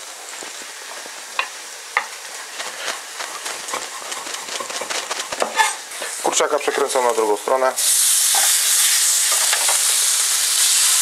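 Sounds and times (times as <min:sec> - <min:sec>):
chicken sizzling on grill pan: 0:05.4 - 0:11.0.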